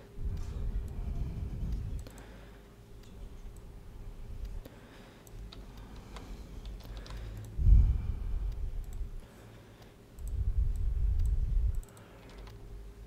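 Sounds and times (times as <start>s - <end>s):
low rumble: 0.2s - 2.1s, 7.6s - 9.2s, 10.2s - 11.8s
computer keyboard typing: 5.2s - 7.6s, 10.2s - 12.6s
mouse clicks: 9.8s - 12.6s.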